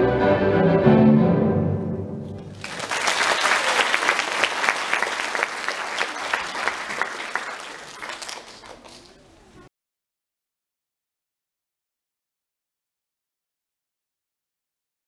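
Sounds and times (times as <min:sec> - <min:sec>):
audience applauding: 0:02.4 - 0:09.2.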